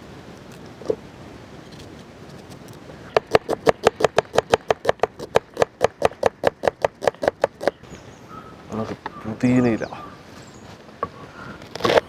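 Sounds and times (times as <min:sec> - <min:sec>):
knife chopping on wooden board: 0:03.1 - 0:07.8.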